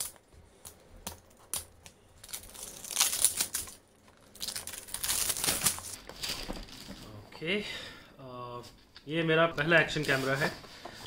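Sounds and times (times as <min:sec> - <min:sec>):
scraping and rustling of cardboard: 0:09.9 - 0:11.0.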